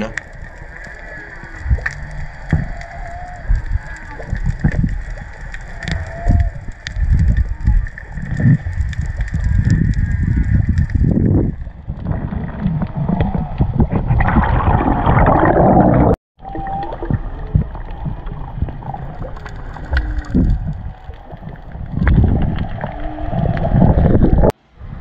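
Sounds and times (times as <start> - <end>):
muffled underwater water rushing: 0.0 - 25.0.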